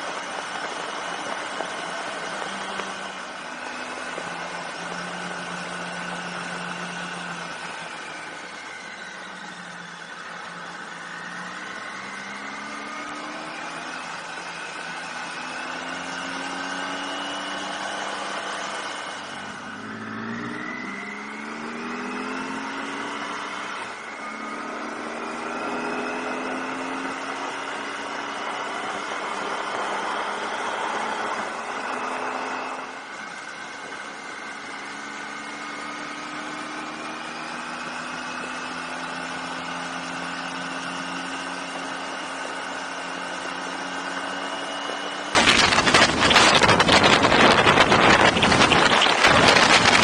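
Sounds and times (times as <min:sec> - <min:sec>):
motorcycle engine running: 0:26.2 - 0:50.0
wind buffeting microphone: 0:45.4 - 0:50.0.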